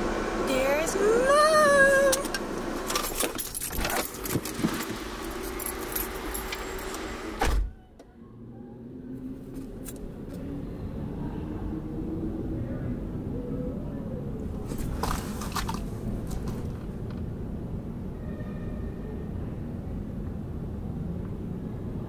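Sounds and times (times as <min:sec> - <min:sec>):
car door slamming: 0:07.4 - 0:07.8.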